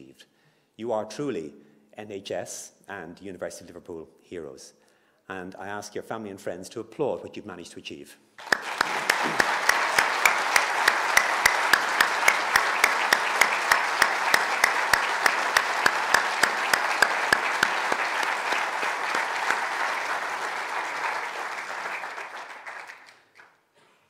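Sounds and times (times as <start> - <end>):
audience applause: 8.4 - 23.6
sharp nearby claps: 8.4 - 23.6.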